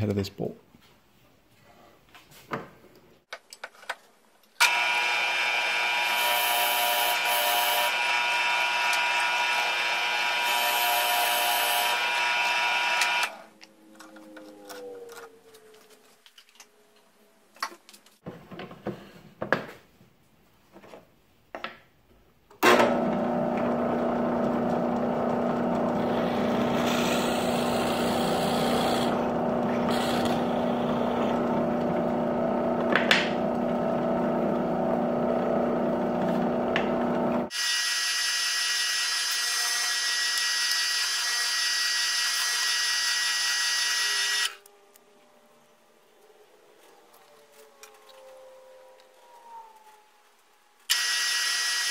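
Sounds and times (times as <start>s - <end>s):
drill bit boring into wood: 4.6s - 13.3s, 22.8s - 44.6s, 50.9s - 51.9s
drill press motor whining: 4.6s - 13.4s, 22.6s - 44.7s, 50.9s - 51.9s.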